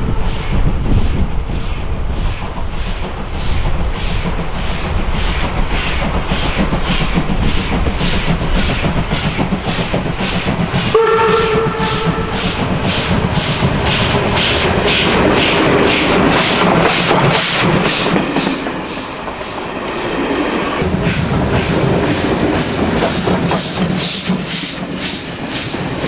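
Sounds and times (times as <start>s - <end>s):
steam locomotive exhaust chuffing: 0.0s - 19.8s, 20.8s - 26.0s
train rumble: 0.0s - 26.0s
steam whistle blast: 10.9s - 12.6s.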